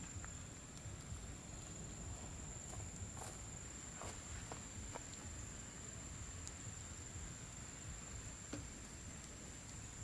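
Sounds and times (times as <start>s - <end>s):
soft footsteps: 2.1s - 5.4s.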